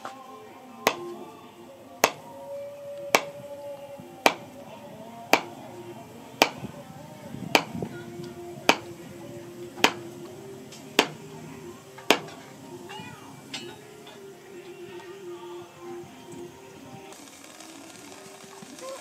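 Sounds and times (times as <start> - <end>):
background music: 0.0 - 19.0
handle knocking on steel anvil: 8.7 - 8.9, 9.8 - 10.0, 11.0 - 11.2, 12.0 - 12.4.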